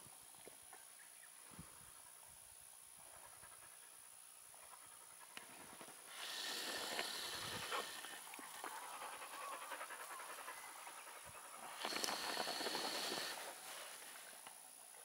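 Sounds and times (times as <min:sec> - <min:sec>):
dog panting: 0:06.9 - 0:13.5.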